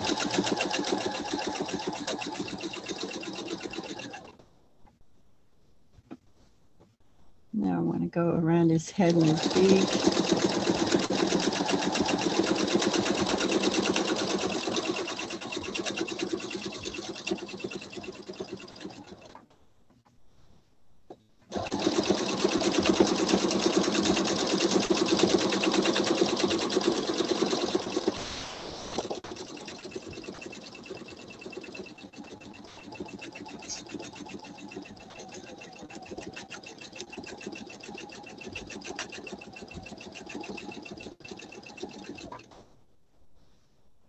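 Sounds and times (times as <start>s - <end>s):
sewing machine needle chattering: 0.0s - 4.3s, 9.0s - 19.4s, 21.5s - 28.2s, 29.0s - 42.5s.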